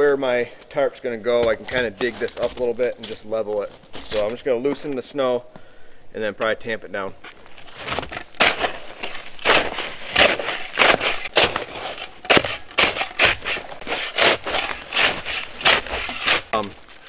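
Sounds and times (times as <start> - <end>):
shovel scraping crusted snow: 7.6 - 16.7.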